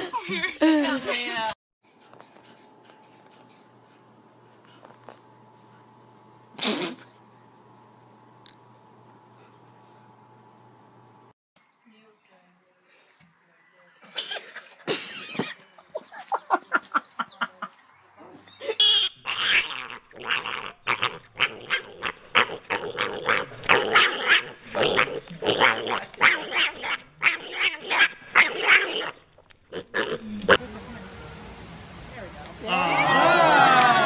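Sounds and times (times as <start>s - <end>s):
piglet squealing: 18.8s - 30.2s.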